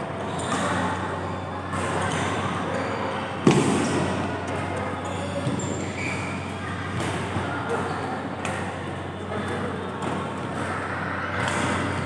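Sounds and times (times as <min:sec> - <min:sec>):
echoing murmur of sports hall: 0:00.0 - 0:12.0
rackets striking shuttlecock: 0:11.4 - 0:12.0.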